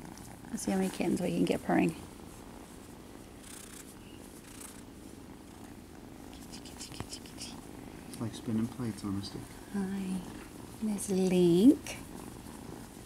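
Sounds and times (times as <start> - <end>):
fur rustling under stroking: 0.0 - 6.2
kittens purring: 0.0 - 13.0.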